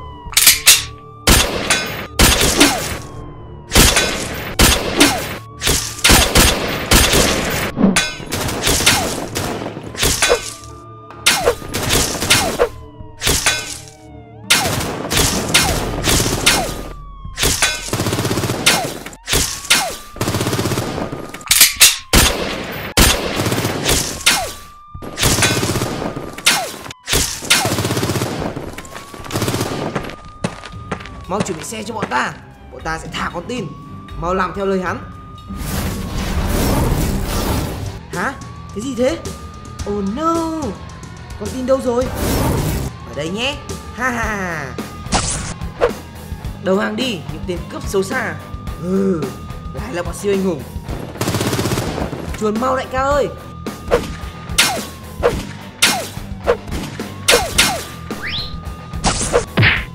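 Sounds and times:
police siren wailing: 0.0 - 59.9.

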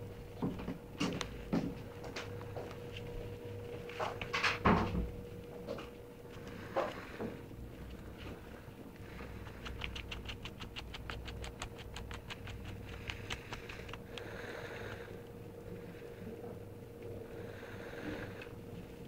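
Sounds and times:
faint steady hum: 0.0 - 19.0
kitten play-fighting light ticks: 6.3 - 15.4.

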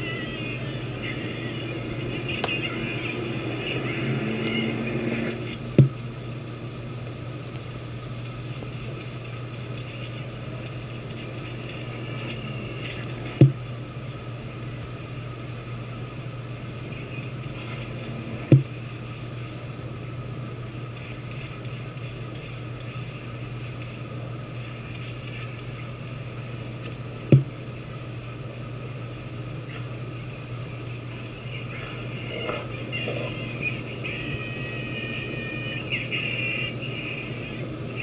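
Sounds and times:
low hum: 0.0 - 38.0
short thumps: 5.7 - 6.0, 13.4 - 13.7, 18.5 - 18.7, 27.3 - 27.6.

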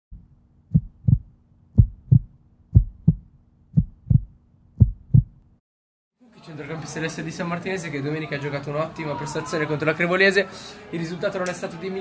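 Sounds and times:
heartbeat double thumps: 0.1 - 5.4.

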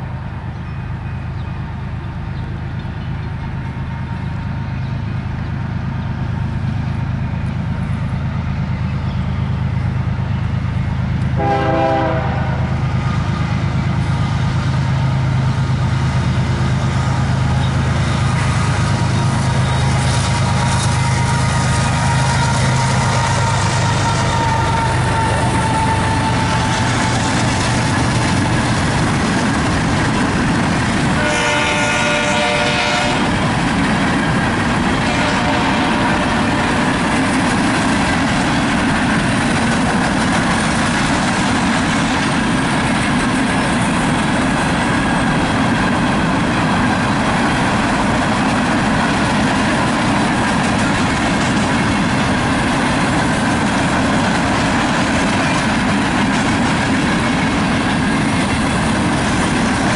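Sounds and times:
train wheels on rails: 0.0 - 59.9
train horn: 11.4 - 12.9, 18.0 - 27.5, 31.1 - 33.5, 35.0 - 37.1.

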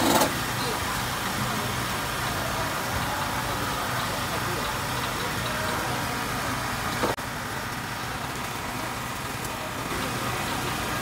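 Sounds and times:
stall background noise: 0.0 - 11.0.

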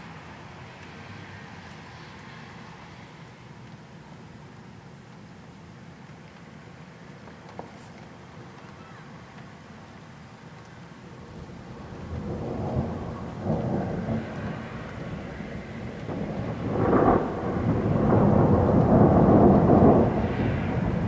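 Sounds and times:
rolling thunder: 11.2 - 21.0.

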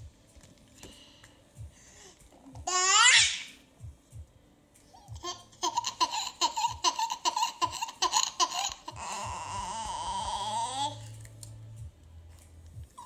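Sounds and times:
toddler laughing: 5.1 - 11.0.

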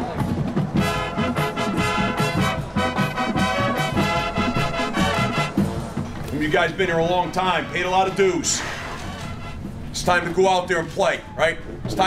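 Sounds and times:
upbeat brass music: 0.7 - 10.4.

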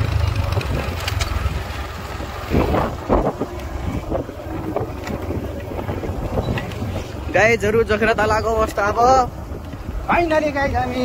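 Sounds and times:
motorcycle engine on dirt track: 0.0 - 8.5
wind buffeting microphone: 0.0 - 11.0.

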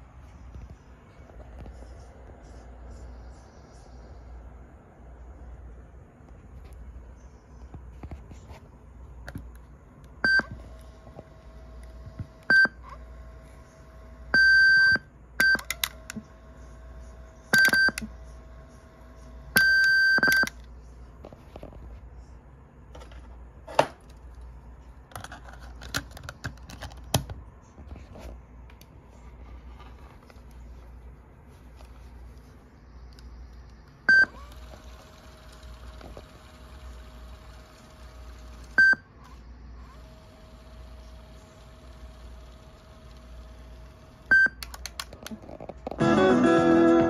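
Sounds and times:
faint steady hum: 0.0 - 47.0.

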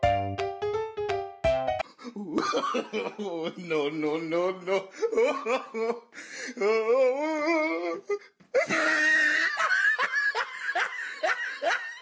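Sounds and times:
high-pitched laughter: 8.6 - 12.0.

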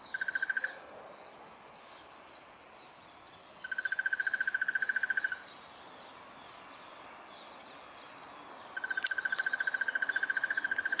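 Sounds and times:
bird rapid trill: 0.0 - 0.8.

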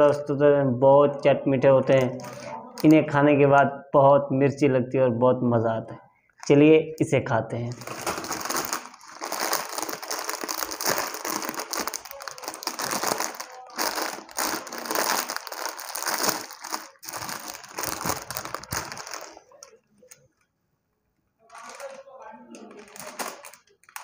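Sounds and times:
snack packet crinkling: 1.9 - 3.0, 7.7 - 20.2, 21.5 - 24.0.

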